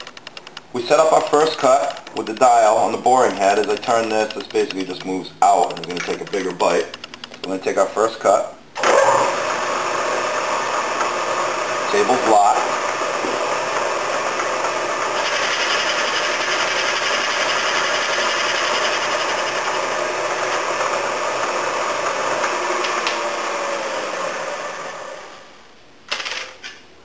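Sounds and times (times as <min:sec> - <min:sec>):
milling machine cutting metal: 0:08.8 - 0:25.3.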